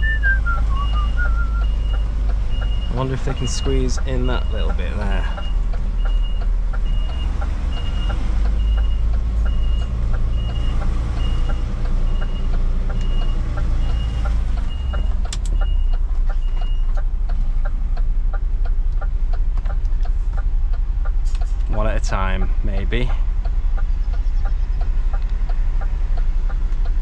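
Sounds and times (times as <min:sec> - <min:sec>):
reversing alarm beeping: 0:00.0 - 0:16.9
diesel engine running: 0:00.0 - 0:27.0
regular ticking: 0:00.0 - 0:27.0.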